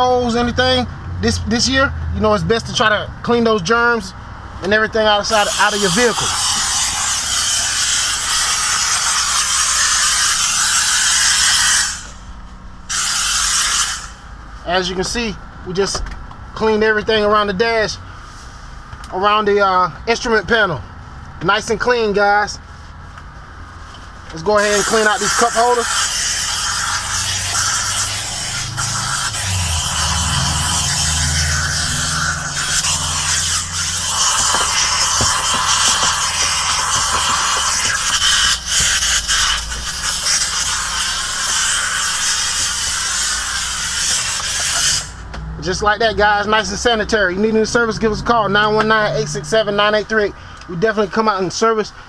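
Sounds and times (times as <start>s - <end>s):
steam cleaner hissing: 5.3s - 12.3s, 12.9s - 14.2s, 24.6s - 45.2s
low hum: 26.4s - 36.9s.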